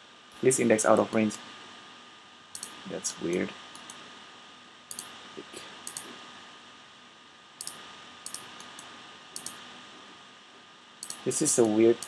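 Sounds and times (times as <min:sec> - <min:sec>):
faint steady hiss: 0:00.0 - 0:12.0
computer mouse clicking: 0:02.5 - 0:04.0, 0:04.9 - 0:05.1, 0:05.8 - 0:06.1, 0:07.6 - 0:09.6, 0:11.0 - 0:12.0.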